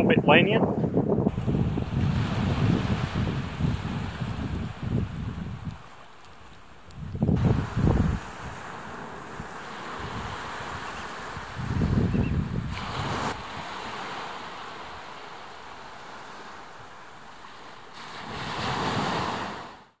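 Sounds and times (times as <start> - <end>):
wind gusting across microphone: 0.0 - 16.9
small waves washing on shore: 1.3 - 20.0.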